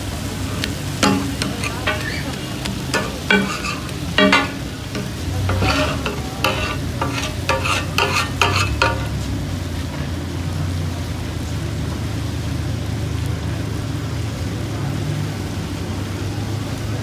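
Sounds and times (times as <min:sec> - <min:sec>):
hot oil sizzling: 0:00.0 - 0:17.0
metal spatula scraping griddle: 0:00.5 - 0:09.3.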